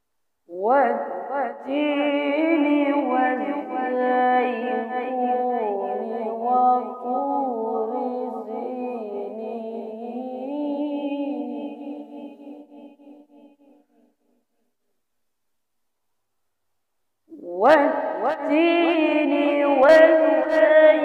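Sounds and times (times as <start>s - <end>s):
child chanting melodically: 0.5s - 13.1s, 17.3s - 21.0s.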